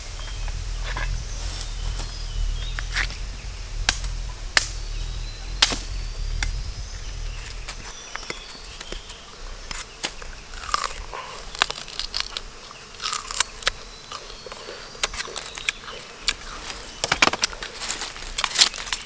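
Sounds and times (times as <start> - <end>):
low rumble: 0.0 - 9.6
sharp knocks and cracks: 3.8 - 4.8, 5.6 - 6.6, 17.0 - 19.0.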